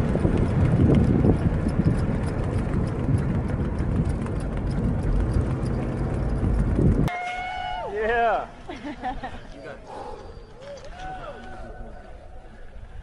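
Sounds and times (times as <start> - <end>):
wind and road noise: 0.0 - 7.2.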